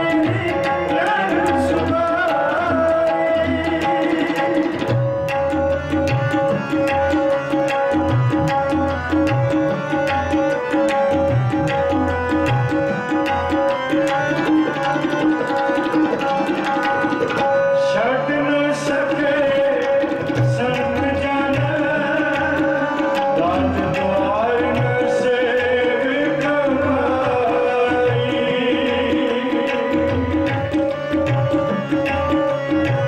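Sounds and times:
man singing: 0.0 - 6.5, 17.4 - 33.0
harmonium chords: 0.0 - 33.0
tabla strokes: 0.0 - 33.0.

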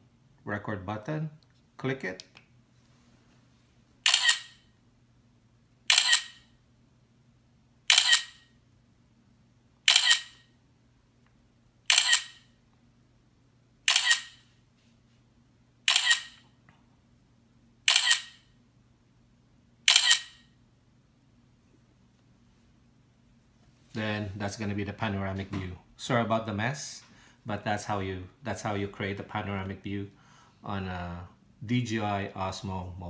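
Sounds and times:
smartphone camera shutter clicks: 4.0 - 4.6, 5.9 - 6.5, 7.9 - 8.5, 9.9 - 10.5, 11.9 - 12.5, 13.9 - 14.4, 15.9 - 16.4, 17.9 - 18.4, 19.9 - 20.5.

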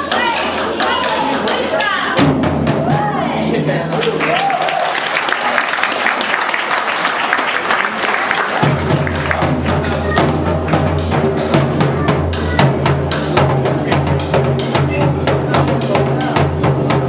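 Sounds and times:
large drum struck rapidly: 0.0 - 4.0, 8.5 - 17.0
applause: 3.8 - 10.8.

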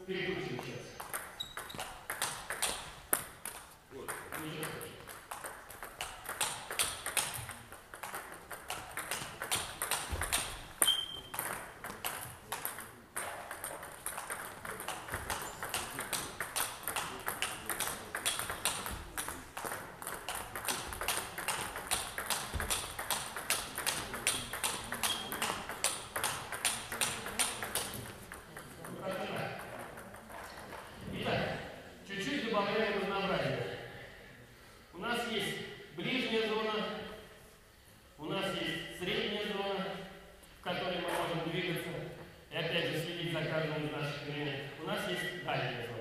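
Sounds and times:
table tennis ball clicking: 1.0 - 30.9
brief squeak: 10.8 - 11.3.

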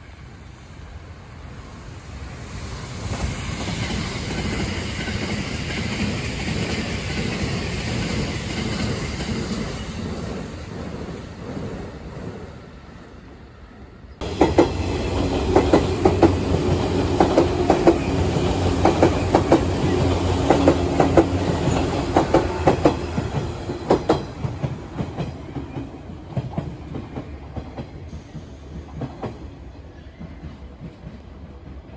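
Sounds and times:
train rumble: 0.0 - 31.9
train wheels clicking over joints: 14.2 - 29.5.

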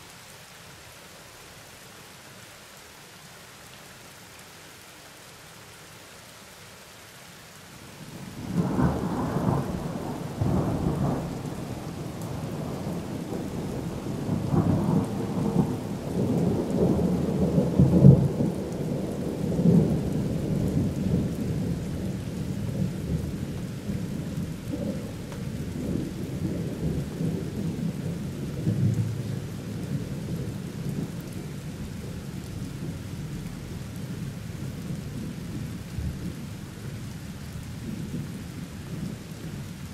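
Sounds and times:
steady rain: 0.0 - 39.9
thunder rumbling: 8.4 - 29.3.

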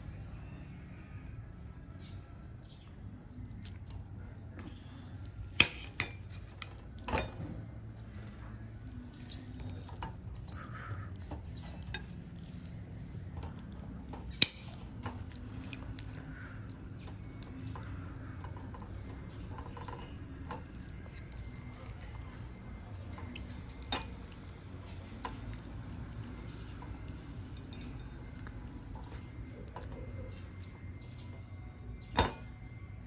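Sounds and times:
low steady hum: 0.0 - 33.0
cutlery and dishes clinking: 5.4 - 7.6, 23.2 - 24.4, 32.0 - 32.6.

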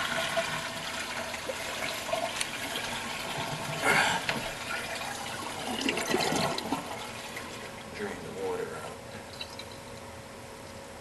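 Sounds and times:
toilet tank draining: 0.0 - 8.3.

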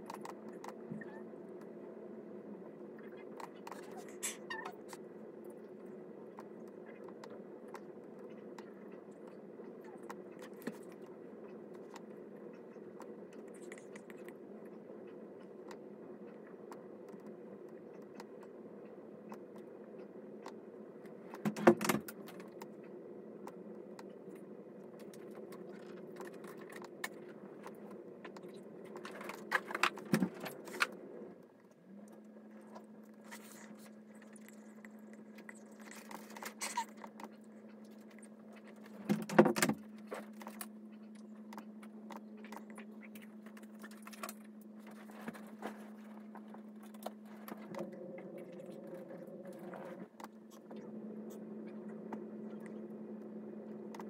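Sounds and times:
steady low hum: 0.0 - 54.0
steady low tone: 39.8 - 54.0.

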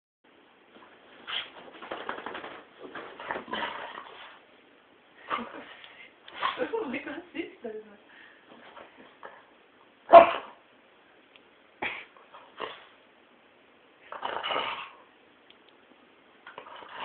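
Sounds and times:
dog barking and yipping: 10.1 - 10.6.

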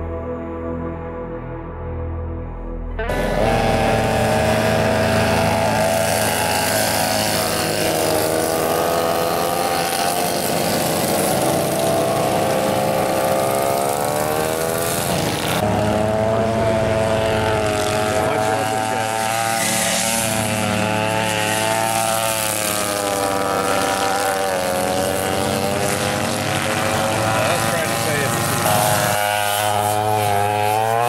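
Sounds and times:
soft music: 0.0 - 4.5
racing kart engines: 2.9 - 31.0.

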